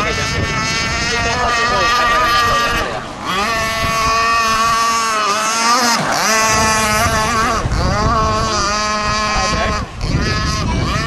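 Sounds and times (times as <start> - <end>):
two-stroke engine high buzz: 0.0 - 11.0.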